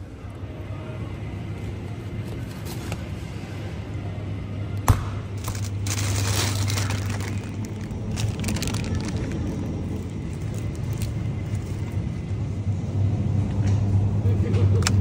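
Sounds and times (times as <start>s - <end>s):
freezer cabinets humming: 0.0s - 14.7s
noisy rustle: 5.4s - 12.1s.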